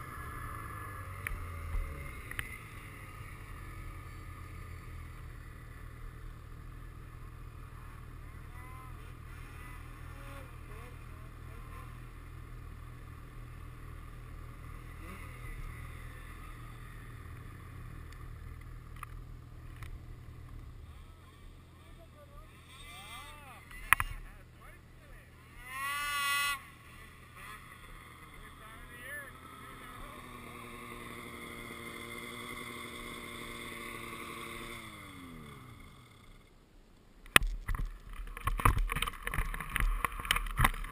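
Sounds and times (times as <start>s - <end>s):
snowmobile engines idling: 0.0s - 36.7s, 37.3s - 40.9s.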